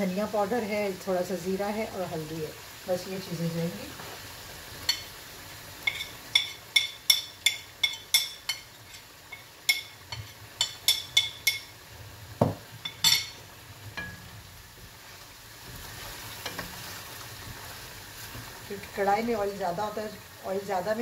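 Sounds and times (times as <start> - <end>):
chicken sizzling in oil: 0.0 - 21.0
spoon clinking on a plate: 5.8 - 11.7, 12.8 - 13.4.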